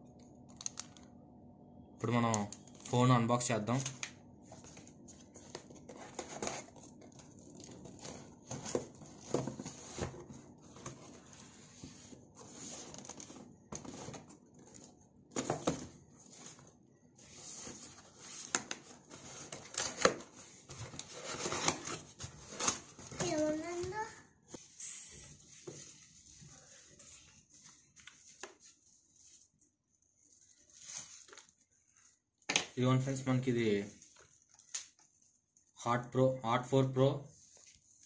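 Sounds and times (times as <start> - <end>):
cardboard rustling: 4.5 - 24.1, 25.4 - 32.2.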